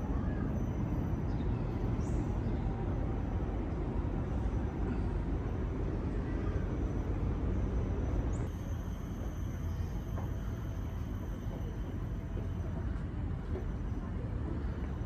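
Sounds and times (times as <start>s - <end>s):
faint high chirp: 0.0s - 3.5s, 8.2s - 12.9s
low outdoor rumble: 0.0s - 15.0s.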